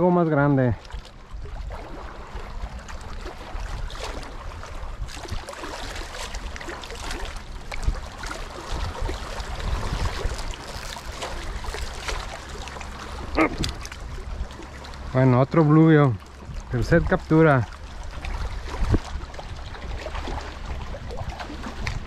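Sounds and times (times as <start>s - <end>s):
small waves lapping on rocks: 0.2s - 22.0s
wind buffeting microphone: 7.6s - 12.3s, 16.3s - 22.0s.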